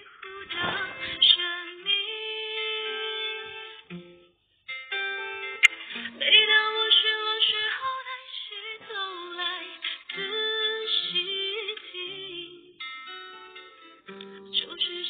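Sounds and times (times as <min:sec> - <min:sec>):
woman singing slow song: 0:00.0 - 0:03.9, 0:06.0 - 0:12.9, 0:14.3 - 0:15.0
instrumental backing music: 0:00.0 - 0:15.0.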